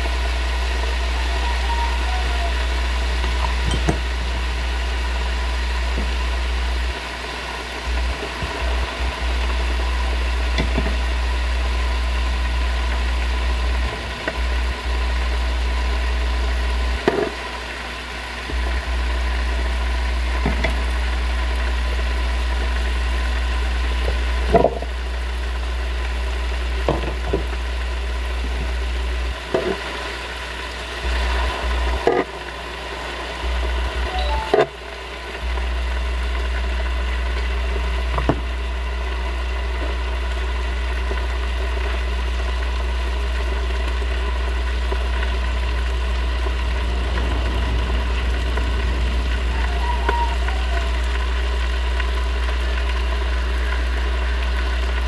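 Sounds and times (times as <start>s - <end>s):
steady low hum: 0.0s - 26.8s, 39.9s - 55.0s.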